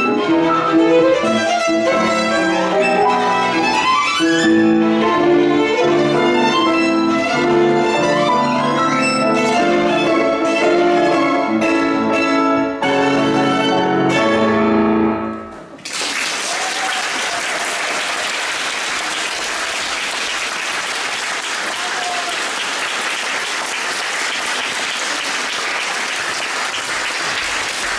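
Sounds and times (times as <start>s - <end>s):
violin and piano chord: 0.0s - 15.6s
audience applause: 15.8s - 27.9s.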